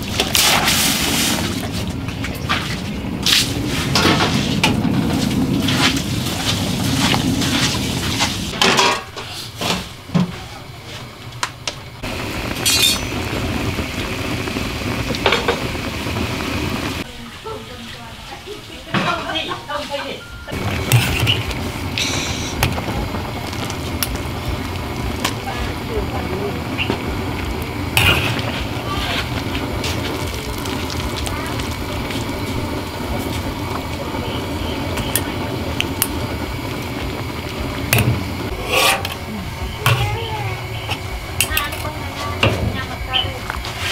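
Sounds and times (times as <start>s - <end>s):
cooking fire rumble: 0.0s - 43.9s
water boiling in a wok: 0.0s - 43.9s
small crackles and clicks: 20.9s - 32.2s, 34.9s - 37.3s.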